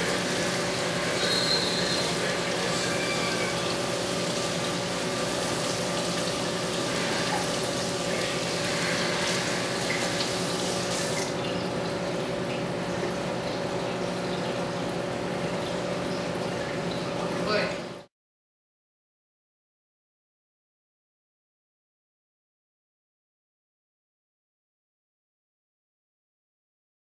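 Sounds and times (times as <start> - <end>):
water trickling and splashing: 0.0 - 18.0
low pump hum: 0.0 - 18.1.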